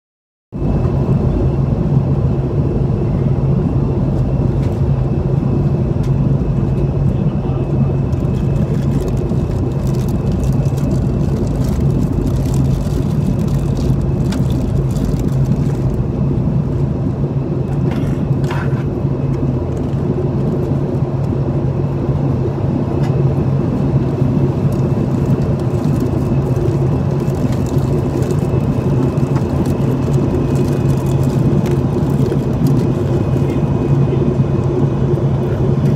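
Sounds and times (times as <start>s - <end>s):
constant low hum: 0.6s - 35.9s
jet engines droning: 0.6s - 35.9s.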